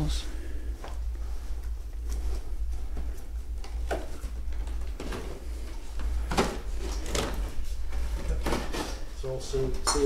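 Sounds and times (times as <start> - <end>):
steady low hum: 0.0 - 10.0
rummaging through boxes and packaging: 0.7 - 10.0.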